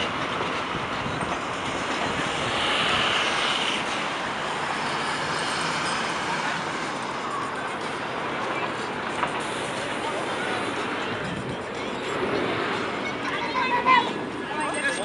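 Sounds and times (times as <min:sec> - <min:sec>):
street traffic: 0:00.0 - 0:15.0
high squeal: 0:10.2 - 0:15.0.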